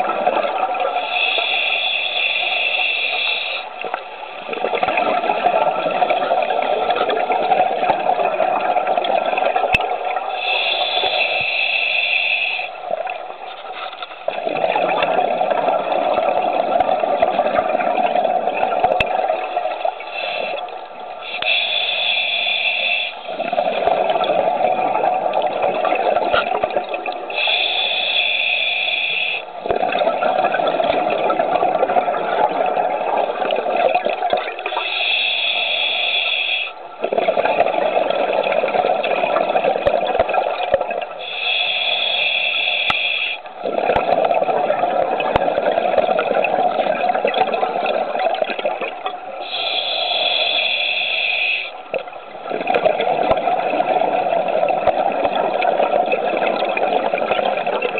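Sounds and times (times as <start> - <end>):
regulator hissing inhale: 1.0 - 3.8, 10.3 - 12.8, 20.0 - 23.5, 27.3 - 29.5, 34.7 - 36.8, 41.1 - 43.5, 49.4 - 51.9
exhaled bubbles rushing: 4.4 - 10.5, 14.3 - 20.0, 23.3 - 27.4, 29.6 - 34.8, 37.0 - 41.2, 43.6 - 49.6, 51.9 - 57.9.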